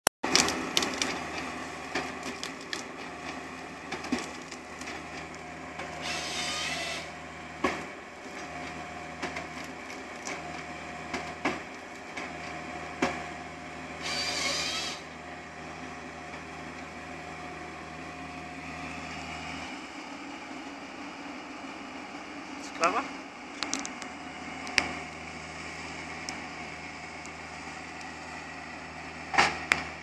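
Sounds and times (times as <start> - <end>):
wood cracking and snapping: 0.2 - 6.0, 7.6 - 13.2, 23.6 - 25.2
excavator engine running: 0.2 - 30.0
saw cutting wood: 4.0 - 7.2, 13.9 - 15.1.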